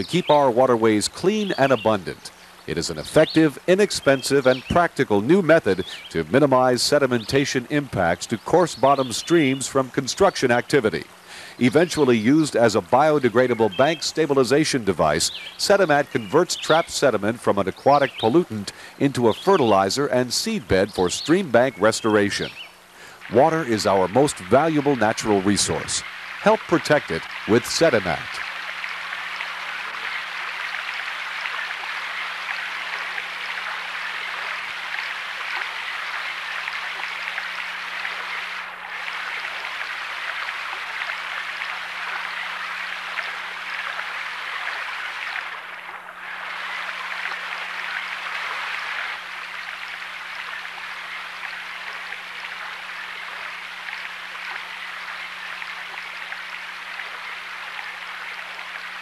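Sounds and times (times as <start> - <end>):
faint steady hum: 0.0 - 59.0
stream rushing over rocks: 23.0 - 52.8.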